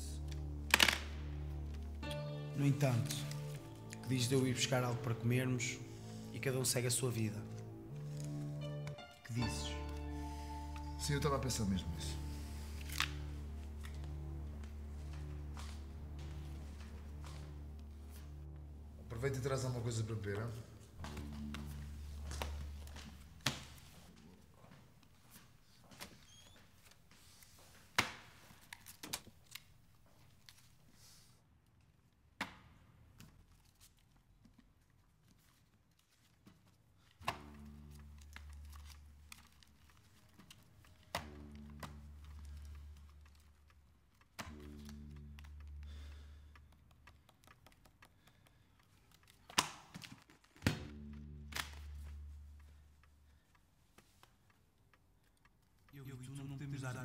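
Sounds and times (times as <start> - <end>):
banknotes rustling: 2.6 - 18.3, 33.2 - 55.9
low deep drone: 9.7 - 19.8.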